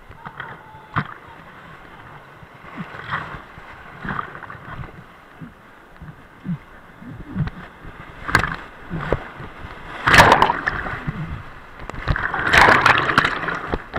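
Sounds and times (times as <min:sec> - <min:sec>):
sharp water splashes: 0:09.9 - 0:11.2, 0:11.9 - 0:13.9.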